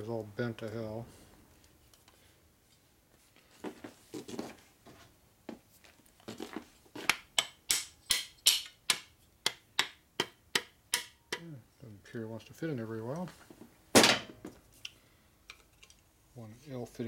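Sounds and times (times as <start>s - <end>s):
sharp metal taps: 7.1s - 11.4s
metal parts being handled: 14.0s - 16.0s.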